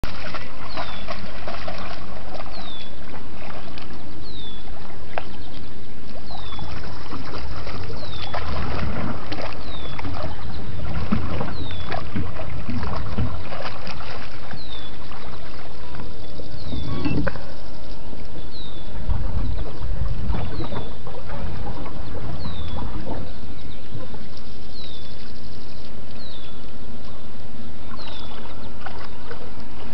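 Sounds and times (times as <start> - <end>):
dog splashing in water: 0.0 - 4.6, 6.3 - 15.7, 19.1 - 23.3.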